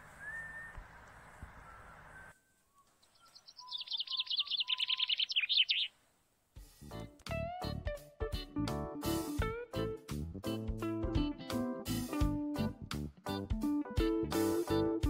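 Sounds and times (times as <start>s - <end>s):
low whistled bird notes: 0.0s - 5.9s
songbird trilling: 0.0s - 5.9s
outdoor background noise: 0.0s - 7.3s
plucked guitar music: 7.1s - 15.0s.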